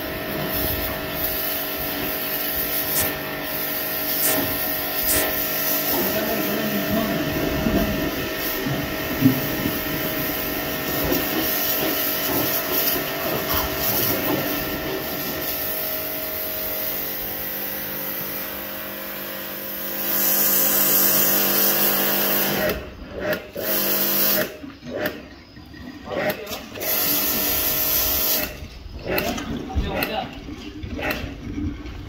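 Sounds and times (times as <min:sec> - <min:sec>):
water jet hissing: 0:00.0 - 0:22.8, 0:23.6 - 0:24.6, 0:26.6 - 0:28.8
pressure washer motor humming: 0:00.0 - 0:24.6, 0:26.3 - 0:28.7.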